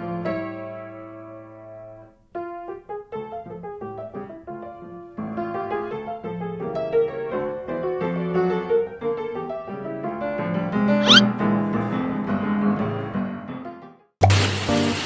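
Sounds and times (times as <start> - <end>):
rising sweep: 11.0 - 11.3.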